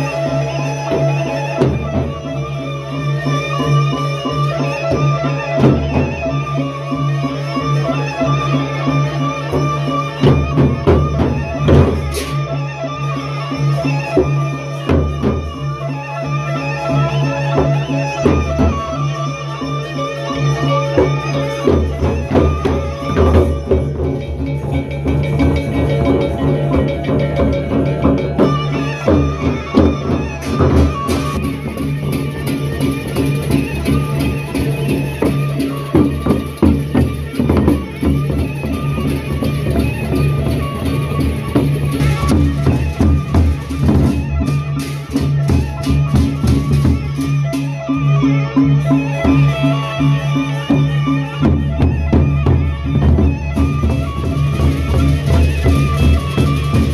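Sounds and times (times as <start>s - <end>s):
large drums beaten with sticks: 10.2s - 12.5s, 21.6s - 47.7s, 51.4s - 56.9s
hand cymbals clashing: 22.4s - 44.0s.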